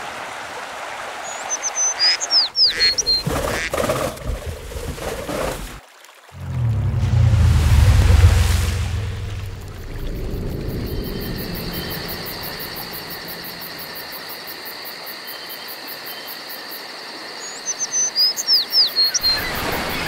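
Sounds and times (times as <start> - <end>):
birds chirping: 1.5 - 3.7
insects calling: 9.8 - 20.0.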